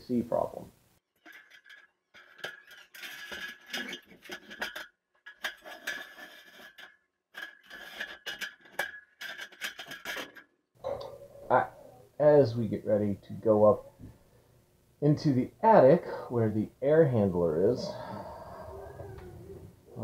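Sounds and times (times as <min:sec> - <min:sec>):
metal ladder clanking and rattling: 0:01.2 - 0:10.4.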